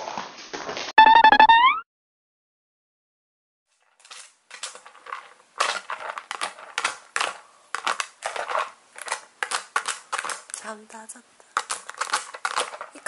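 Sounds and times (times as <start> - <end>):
dog scratching plastic container: 3.8 - 10.8, 11.5 - 13.0.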